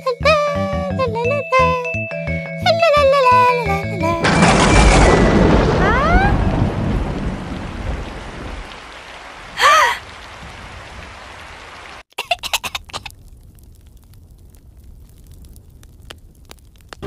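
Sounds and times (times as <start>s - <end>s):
thunder rumble: 4.0s - 12.0s, 13.1s - 17.0s
steady rain: 4.3s - 17.0s.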